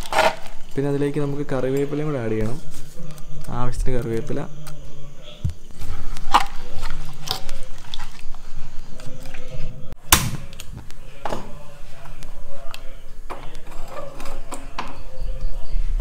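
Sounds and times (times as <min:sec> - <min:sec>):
ladle stirring in clay pot: 0:05.6 - 0:10.0.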